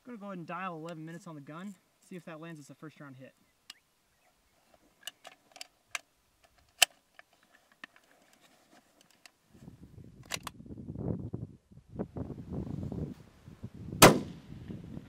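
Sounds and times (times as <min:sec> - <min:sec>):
rifle clicks and knocks: 0:05.0 - 0:08.4, 0:10.2 - 0:10.6
wind rumbling on microphone: 0:09.5 - 0:15.0.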